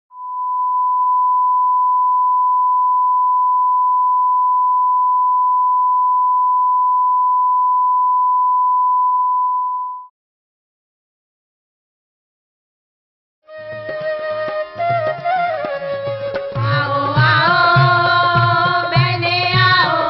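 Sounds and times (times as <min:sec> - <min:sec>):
pure steady test tone beep: 0:00.1 - 0:10.1.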